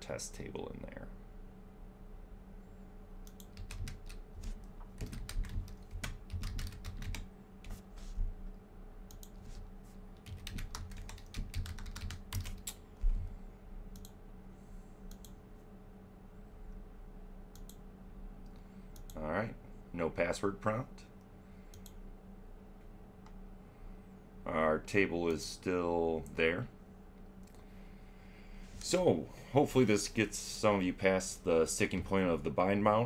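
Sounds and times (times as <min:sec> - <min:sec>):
typing on a keyboard: 0:03.3 - 0:04.2, 0:05.0 - 0:07.3, 0:10.2 - 0:12.8.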